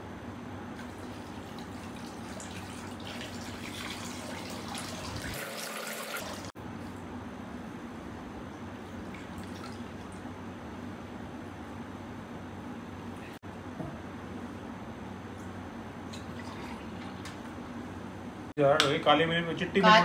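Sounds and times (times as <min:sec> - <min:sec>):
liquid pouring and dripping: 0:00.8 - 0:06.5, 0:09.0 - 0:10.2.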